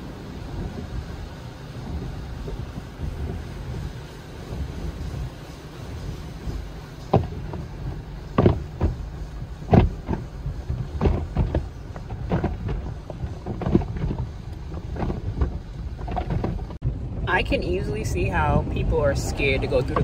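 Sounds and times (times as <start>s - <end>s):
car wash machinery rumble: 0.0s - 20.0s
wash strips slapping car: 0.0s - 20.0s.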